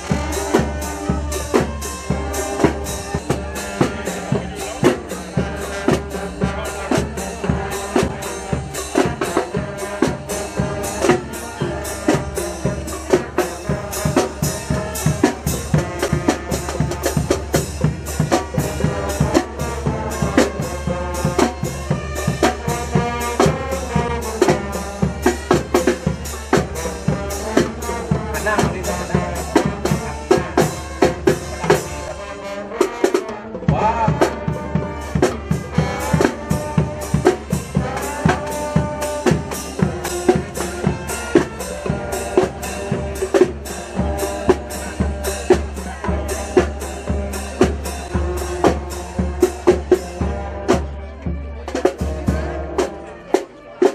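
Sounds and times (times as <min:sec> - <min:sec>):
drums beating march rhythm: 0:00.0 - 0:53.9
marching band playing: 0:00.0 - 0:53.9.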